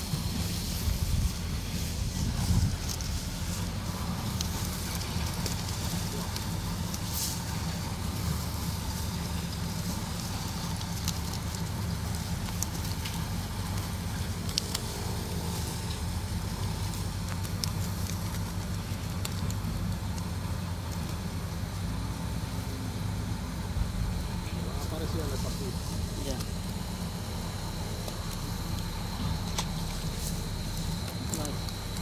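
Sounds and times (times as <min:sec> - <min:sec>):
low motor hum: 0:00.0 - 0:32.0
net rustling and clicks: 0:02.6 - 0:21.2.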